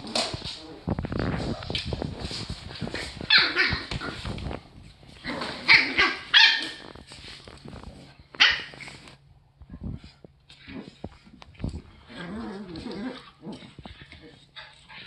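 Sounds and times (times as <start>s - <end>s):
dogs barking high-pitched: 5.7s - 6.9s, 8.4s - 8.8s.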